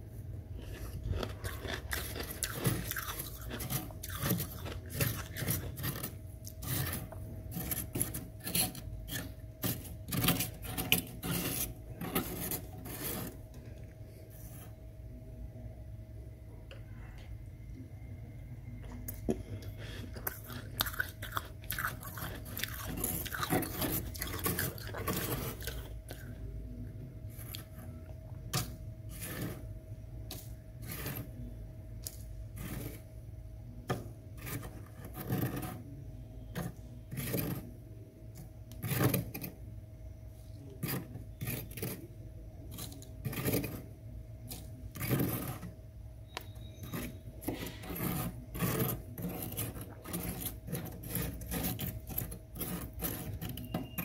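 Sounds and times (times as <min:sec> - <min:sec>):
faint steady hum: 0:00.0 - 0:54.0
metal spoon scraping frost: 0:00.5 - 0:13.6, 0:19.9 - 0:26.5, 0:27.3 - 0:33.2, 0:34.3 - 0:39.6, 0:40.4 - 0:54.0.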